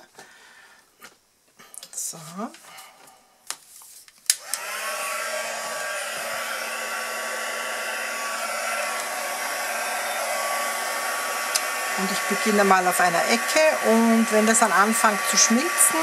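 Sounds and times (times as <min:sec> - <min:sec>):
heat gun fan blowing: 0:04.3 - 0:16.0
heat gun switch click: 0:11.5 - 0:11.7.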